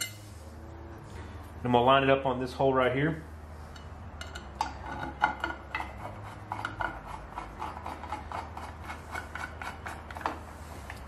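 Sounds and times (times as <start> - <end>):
metal plates clicking and scraping: 3.7 - 11.0.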